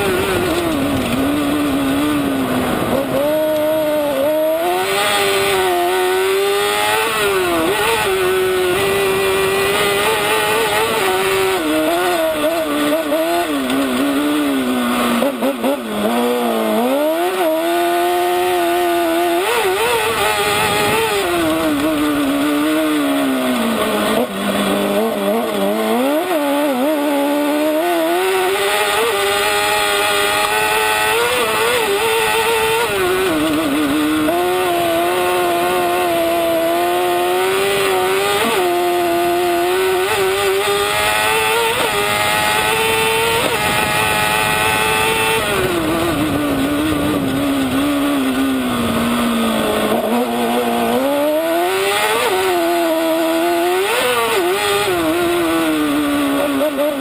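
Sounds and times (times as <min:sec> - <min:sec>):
buggy engine revving: 0:00.0 - 0:57.0.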